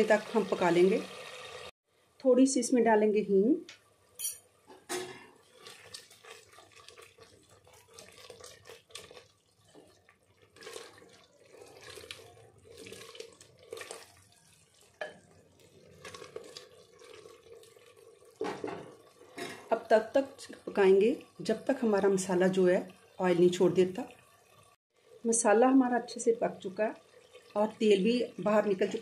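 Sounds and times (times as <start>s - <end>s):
spatula stirring wet food: 5.2s - 25.5s, 26.1s - 29.0s.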